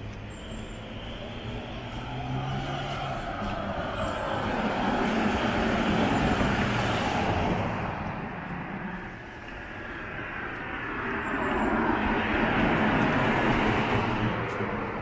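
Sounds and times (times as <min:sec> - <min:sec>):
road traffic passing: 0:00.0 - 0:15.0.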